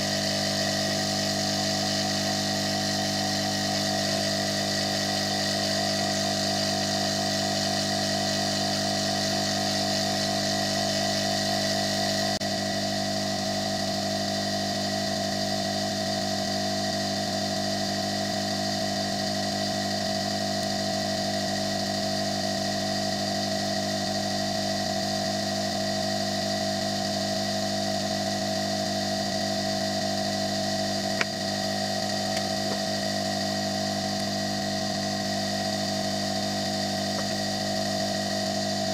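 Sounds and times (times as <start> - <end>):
hot air blower droning: 0.0 - 38.9.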